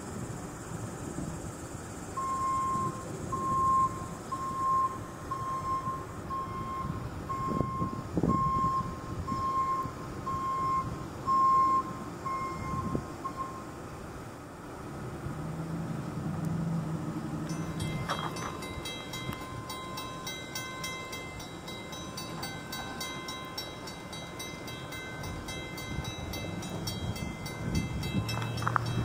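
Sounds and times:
truck backup alarm beeping: 2.1s - 13.8s, 17.5s - 29.0s.

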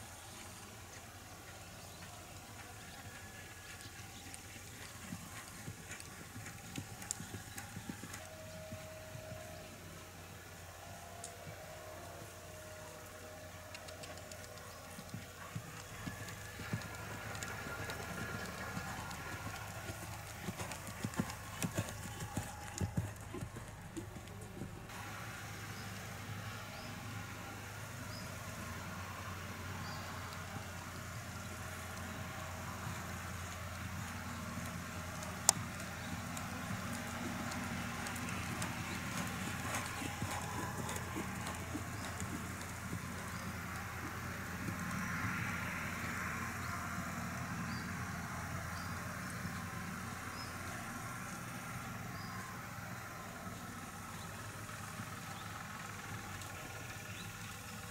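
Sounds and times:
horse hooves cantering on sand: 0.0s - 10.0s, 13.6s - 24.9s, 29.8s - 46.7s.

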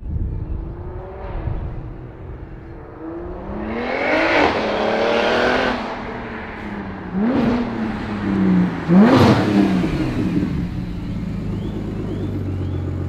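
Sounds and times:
car engine accelerating hard: 0.3s - 13.0s.

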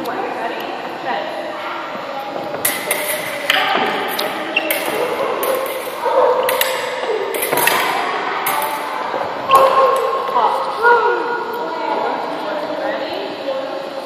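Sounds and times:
fencing blades clinking: 2.6s - 10.2s.

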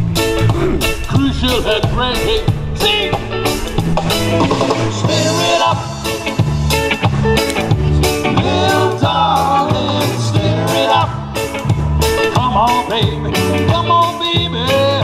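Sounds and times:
bass line: 0.0s - 15.0s
guitars: 0.0s - 15.0s
person singing: 4.9s - 6.4s, 8.3s - 11.2s.

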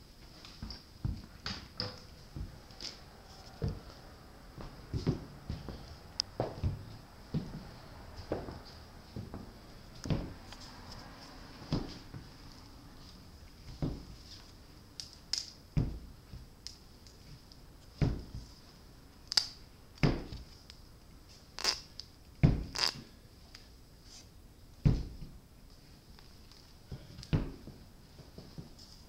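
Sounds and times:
body moving on floor: 0.1s - 14.6s, 24.0s - 29.0s
booted feet thudding on hard floor: 1.0s - 1.6s, 4.6s - 9.5s, 10.1s - 10.4s, 11.7s - 12.3s, 13.7s - 14.2s, 15.8s - 16.4s, 18.0s - 18.4s, 22.4s - 22.7s, 24.8s - 25.2s, 27.3s - 27.8s.

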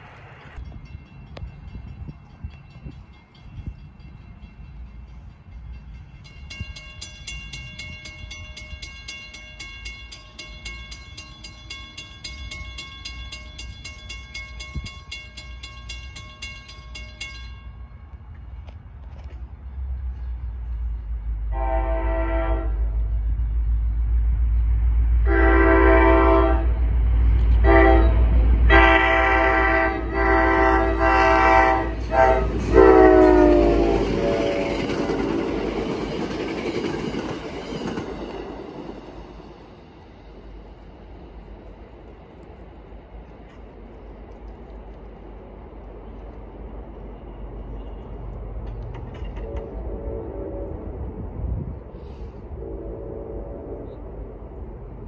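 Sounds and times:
diesel locomotive engine rumble: 0.0s - 55.0s
crossing warning bell ringing: 0.6s - 18.4s, 27.6s - 40.2s
train horn blasts: 21.5s - 23.2s, 25.2s - 26.8s, 27.6s - 35.6s, 49.3s - 54.4s.

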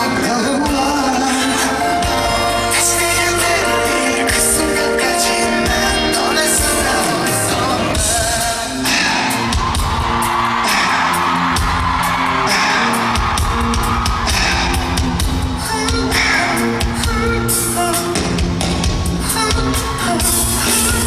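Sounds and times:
loud live pop music with singing: 0.0s - 21.0s
audience screaming: 8.8s - 16.8s, 18.6s - 21.0s.

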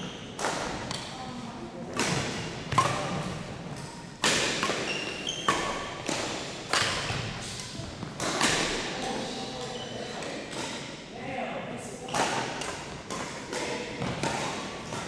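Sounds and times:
rackets hitting shuttlecock: 0.1s - 1.2s, 1.9s - 9.2s, 10.2s - 11.0s, 12.1s - 15.0s
shoes squeaking on wooden floor: 4.8s - 5.8s.

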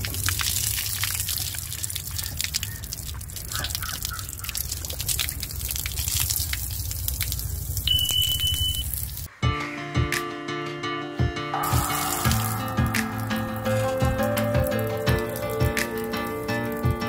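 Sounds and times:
water gushing from a pipe: 0.0s - 9.3s, 11.7s - 17.0s
high-pitched tone: 11.6s - 15.6s.

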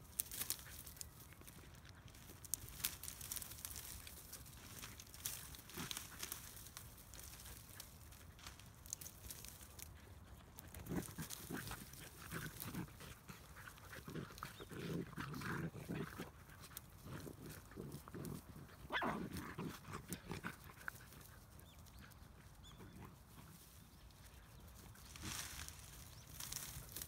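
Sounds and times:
dry grass rustling: 0.0s - 27.0s
puppies yelping while playing: 13.7s - 20.6s.

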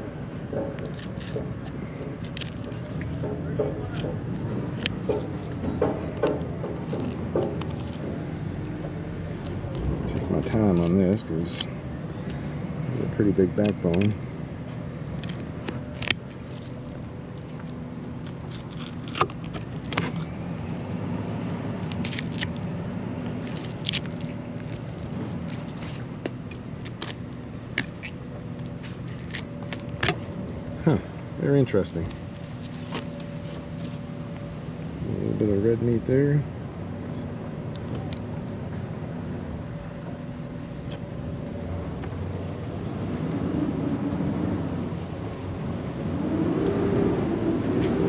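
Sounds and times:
low hum of background noise: 0.0s - 48.0s
motor engine drone: 0.0s - 48.0s
knife crunching through fish bones: 18.2s - 21.0s, 21.7s - 28.2s.

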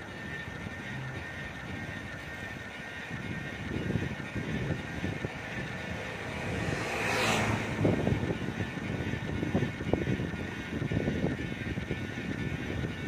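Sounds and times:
bicycle ride rumble: 0.0s - 13.0s.

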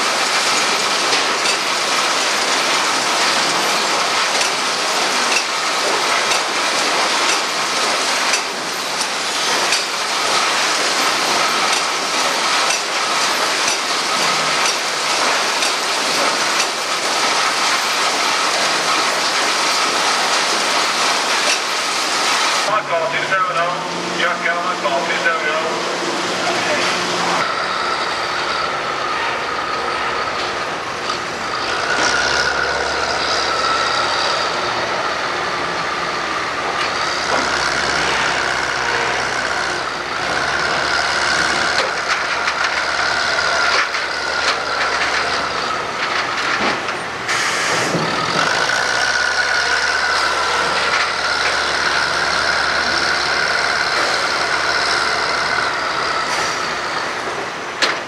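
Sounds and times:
diesel engine working: 18.1s - 58.0s.

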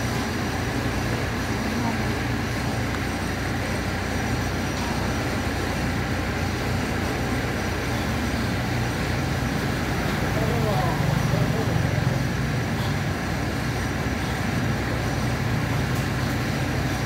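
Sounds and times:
steady background rush: 0.0s - 17.0s.

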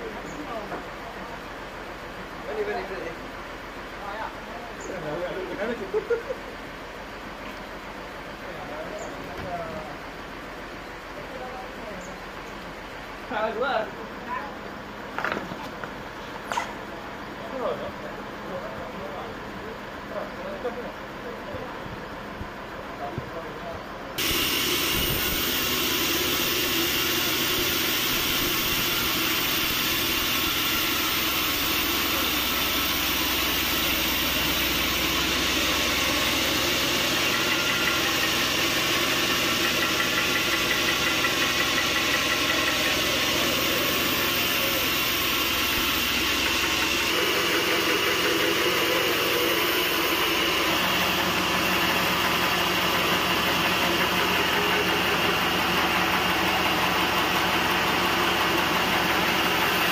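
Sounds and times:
band sawmill running: 24.1s - 59.9s.

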